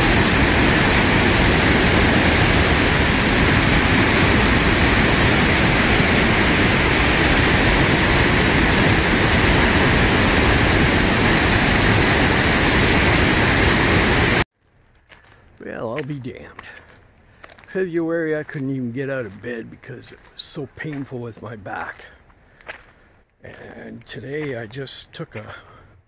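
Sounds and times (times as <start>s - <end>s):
waterfall rushing: 0.0s - 14.4s.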